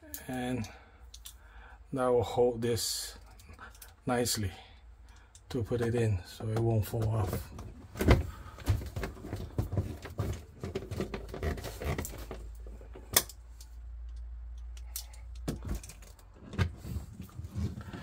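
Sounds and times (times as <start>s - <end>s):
plastic parts clicking and rattling: 3.2s - 4.0s, 6.5s - 16.7s.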